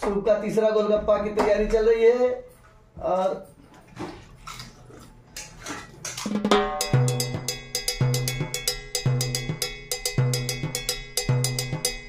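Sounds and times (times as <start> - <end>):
drum-kit beat: 6.2 - 12.0
fast ticking percussion: 6.5 - 12.0.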